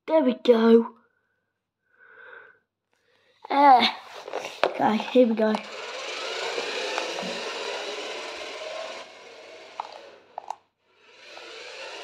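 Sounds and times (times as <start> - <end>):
tyres running on laminate floor: 4.0 - 12.0
toy car electric motor whining: 4.1 - 12.0.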